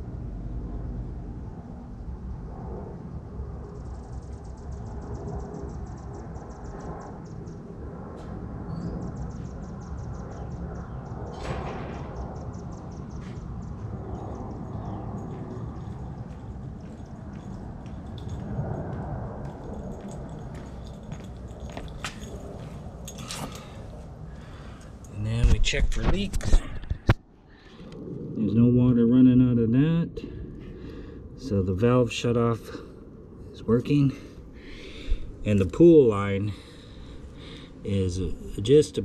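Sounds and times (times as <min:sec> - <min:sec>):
low rumble: 0:00.0 - 0:38.8
footsteps approaching: 0:15.1 - 0:27.2.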